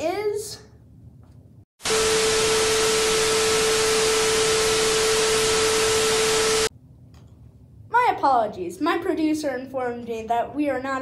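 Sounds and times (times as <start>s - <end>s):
tv static hiss: 3.8s - 6.7s.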